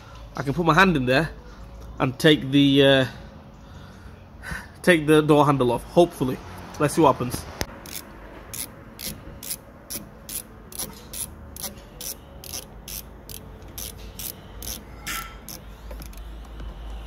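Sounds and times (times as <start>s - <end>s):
ratcheting screwdriver clicks: 7.8s - 16.2s.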